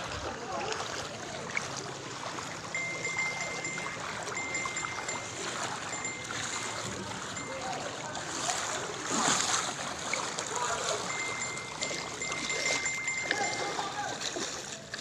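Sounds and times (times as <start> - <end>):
floodwater rushing and sloshing: 0.0 - 15.0
faint high-pitched tone: 2.7 - 8.6, 10.6 - 14.2.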